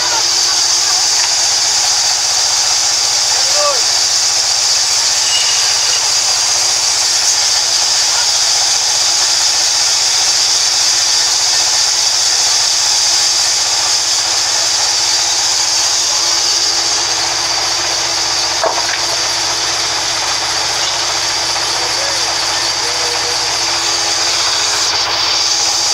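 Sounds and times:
band saw cutting timber: 0:00.0 - 0:25.9.

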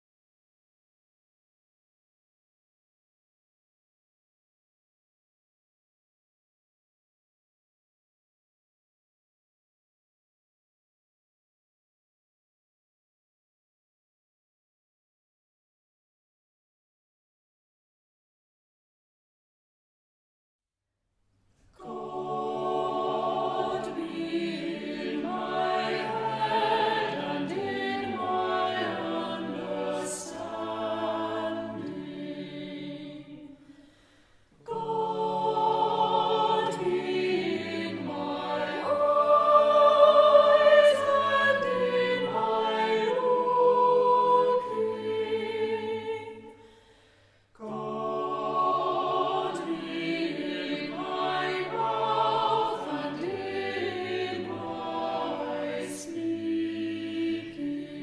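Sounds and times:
choir singing: 0:21.7 - 0:33.9, 0:34.5 - 0:46.8, 0:47.5 - 0:58.0.

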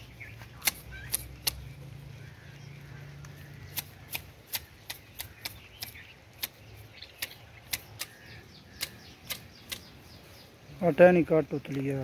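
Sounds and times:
hedge shears snipping: 0:00.4 - 0:01.7, 0:03.3 - 0:10.0.

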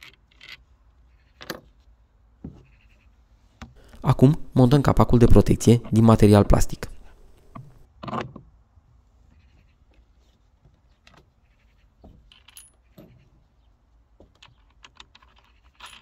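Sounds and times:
metal parts clinking and knocking: 0:00.0 - 0:00.6, 0:12.1 - 0:13.2, 0:14.2 - 0:16.0.

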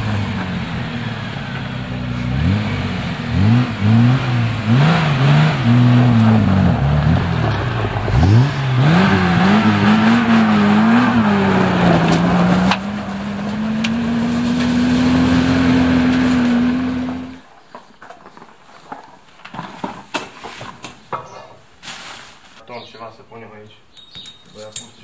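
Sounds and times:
truck engine running: 0:00.0 - 0:17.4.

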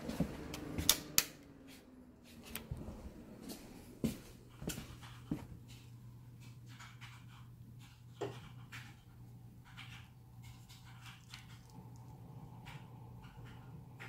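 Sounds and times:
light switch clicking: 0:00.5 - 0:01.5.

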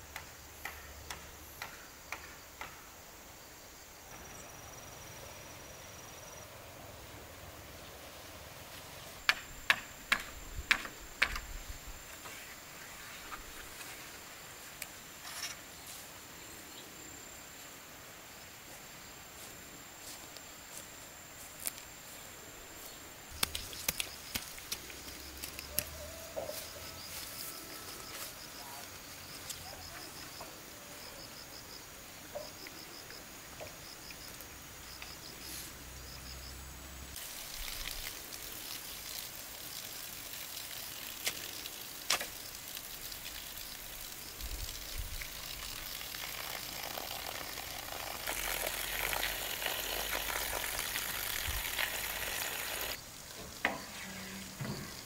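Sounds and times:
high insect drone: 0:00.0 - 0:55.0
scattered clicks and knocks: 0:09.3 - 0:11.5.

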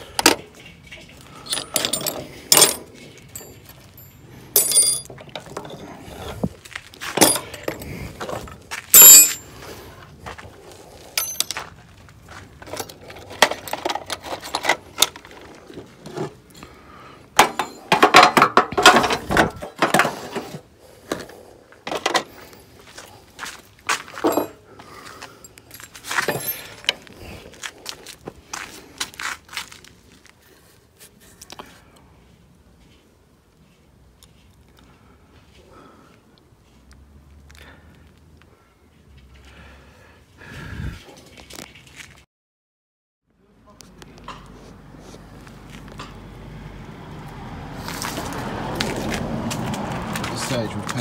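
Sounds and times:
metal clinks and taps from tools: 0:00.2 - 0:05.5, 0:11.2 - 0:11.7, 0:17.4 - 0:19.0
rattling clatter: 0:00.2 - 0:05.9.

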